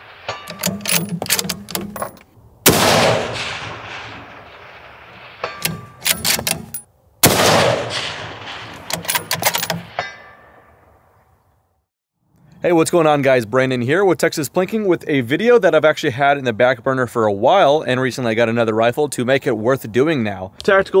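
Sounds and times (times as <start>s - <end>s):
rifle shots: 0.2s - 10.1s
rifle bolt clicking: 0.5s - 2.2s, 5.6s - 6.8s, 8.8s - 9.9s.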